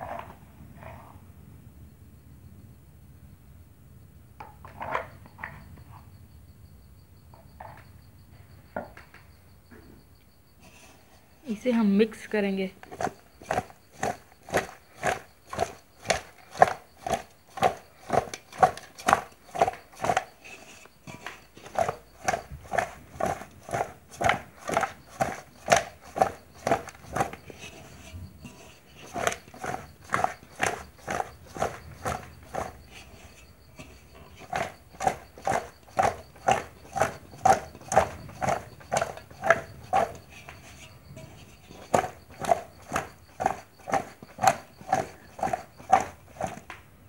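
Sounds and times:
food tossed in shaken pot: 12.8 - 46.6.

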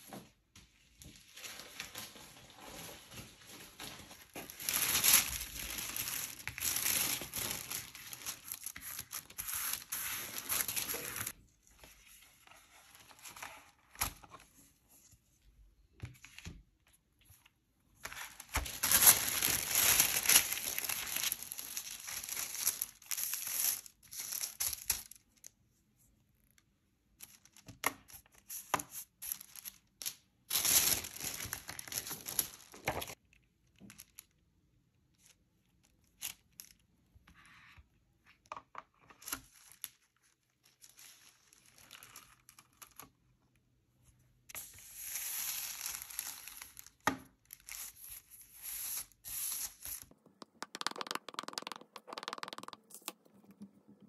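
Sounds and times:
paper tearing and crinkling: 18.4 - 23.9.

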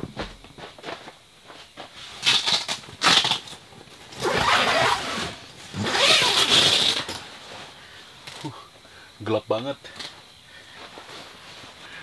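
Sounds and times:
raspy zipper pulls: 2.2 - 7.2.

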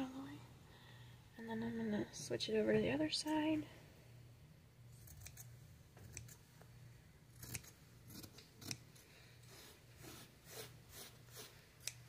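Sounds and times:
scissors snipping fabric: 5.0 - 6.4, 7.4 - 8.9, 11.4 - 12.0.

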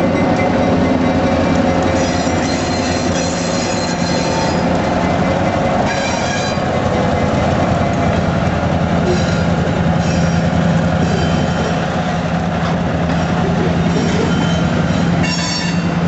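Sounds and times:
diesel locomotive engines running: 0.0 - 16.0
train wheels squealing: 1.9 - 4.7, 9.0 - 11.9, 13.9 - 16.0.

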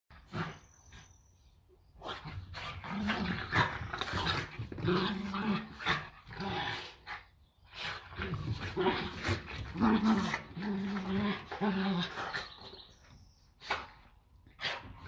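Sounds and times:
dogs growling: 2.0 - 13.1.

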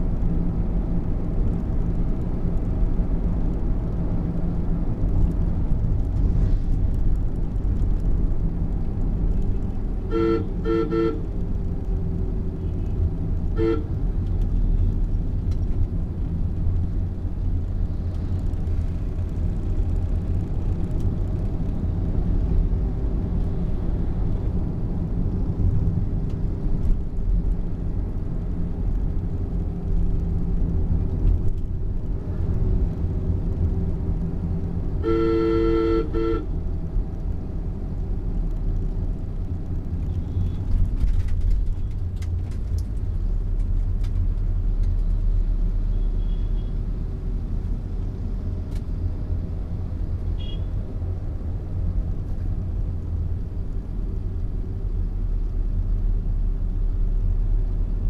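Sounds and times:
engine and road rumble: 0.0 - 58.0
car horn toots: 10.1 - 11.2, 13.6 - 13.9, 35.0 - 36.5, 50.4 - 50.7.

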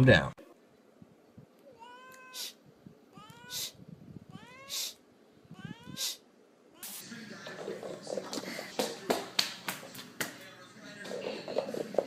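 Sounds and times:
cat meowing: 1.7 - 7.0
cat hissing: 1.8 - 7.0.

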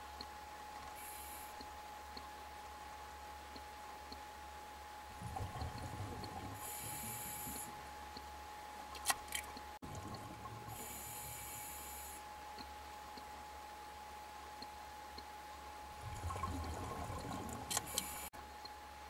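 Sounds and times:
underwater exhaled bubbles: 5.2 - 7.7, 16.0 - 18.2.

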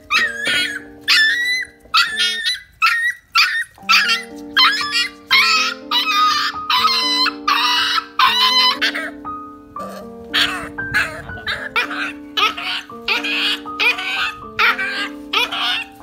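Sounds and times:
puppy whimpering and yelping: 0.0 - 16.0
background music with held chords: 3.8 - 16.0.

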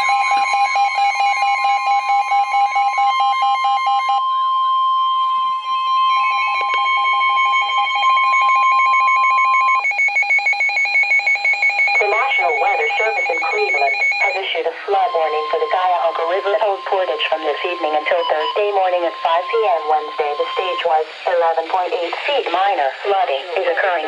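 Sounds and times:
rapid pulsing alarm beeps: 0.0 - 24.0
steady warning alert tone: 6.3 - 20.9.

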